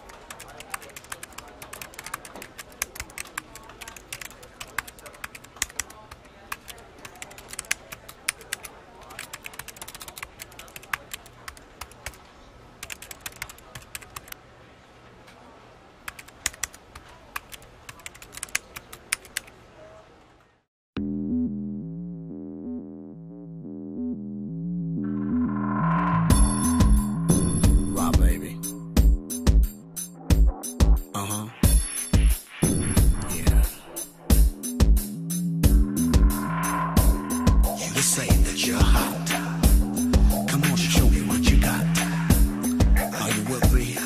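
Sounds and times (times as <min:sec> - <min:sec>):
keyboard typing clicks: 0:00.0 - 0:12.2, 0:12.8 - 0:14.4, 0:16.1 - 0:19.5
music with pulsing chords: 0:21.0 - 0:44.0.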